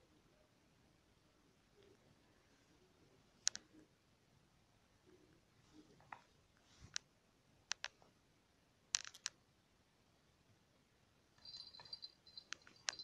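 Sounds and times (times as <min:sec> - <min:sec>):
faint sharp clicks: 0:03.4 - 0:03.7, 0:07.7 - 0:08.0, 0:08.9 - 0:09.4.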